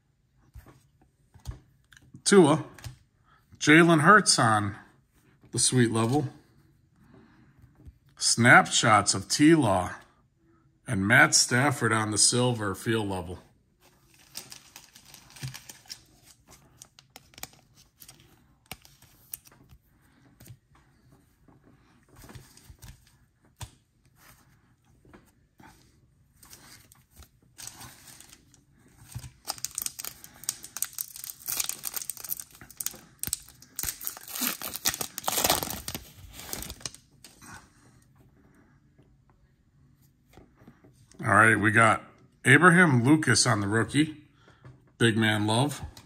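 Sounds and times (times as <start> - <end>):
wrapper crinkling and tearing: 14.1 - 19.6, 29.1 - 37.4.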